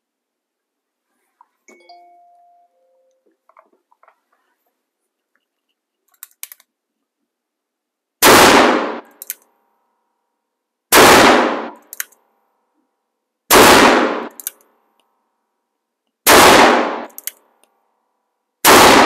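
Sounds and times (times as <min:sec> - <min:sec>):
revolver gunshots echoing: 0:08.2 - 0:09.1, 0:10.9 - 0:11.8, 0:13.5 - 0:14.4, 0:16.2 - 0:17.2, 0:18.6 - 0:19.0.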